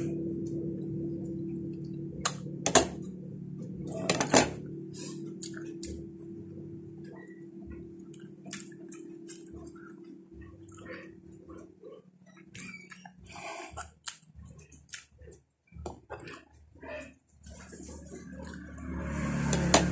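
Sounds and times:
steady low hum: 0.0s - 19.9s
soft chewing: 4.9s - 19.7s.

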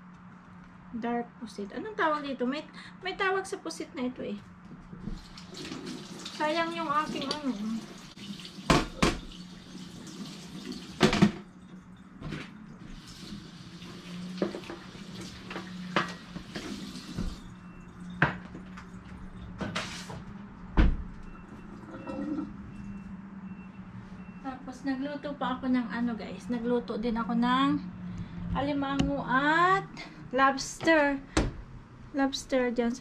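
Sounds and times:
faucet running into steel sink: 5.2s - 11.4s, 12.8s - 17.4s
plastic items knocking sink: 8.7s - 9.3s.

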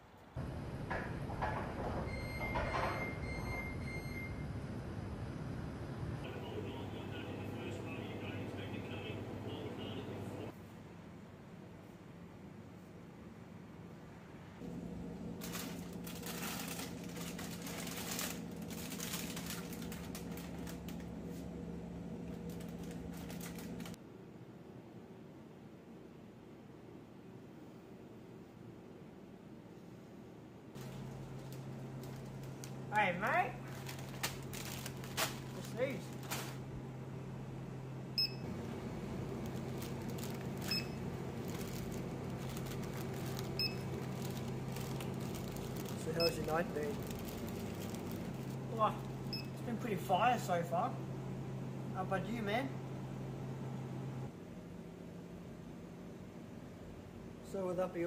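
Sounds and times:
steady low hum: 3.2s - 58.0s
plastic packets crinkling: 15.4s - 21.2s, 22.3s - 24.0s, 30.8s - 32.9s, 33.5s - 36.6s, 39.0s - 49.3s
barcode scanner beeps: 40.6s - 41.0s, 46.2s - 46.5s.

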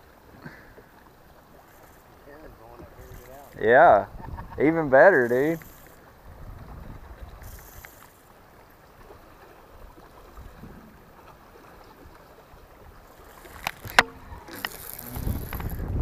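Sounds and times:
light wind: 0.0s - 16.0s
water lapping against boat hull: 0.0s - 16.0s
sharp clicks: 13.3s - 16.0s.

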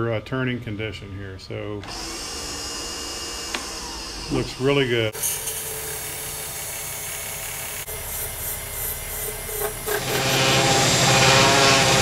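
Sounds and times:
lathe tool scraping plastic: 9.2s - 12.0s.

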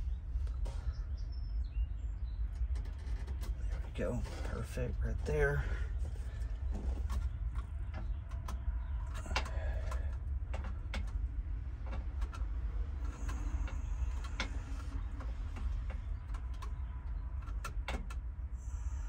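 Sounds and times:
small clicks and taps of wiring: 6.7s - 18.2s.

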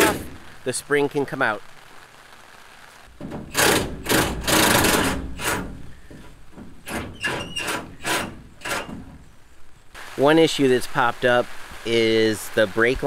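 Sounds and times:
high squeak: 6.9s - 9.0s.

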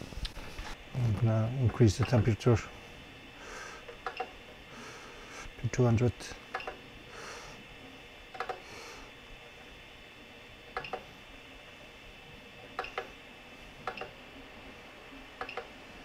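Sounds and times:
faint steady whine: 0.0s - 16.0s
rotary knob clicks: 3.9s - 4.4s, 6.5s - 6.8s, 8.3s - 8.6s, 12.8s - 13.1s, 13.8s - 14.2s, 15.4s - 15.7s.

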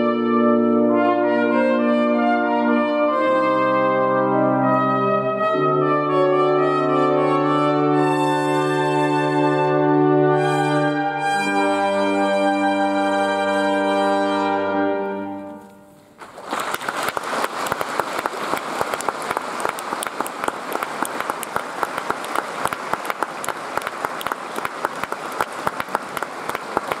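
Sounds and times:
trumpet and brass chord: 0.0s - 15.9s
audience applause: 16.2s - 27.0s.

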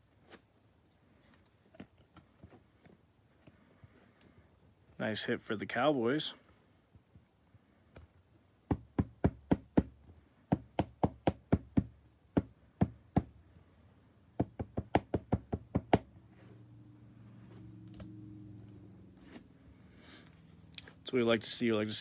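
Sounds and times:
faint low hum: 16.0s - 22.0s.

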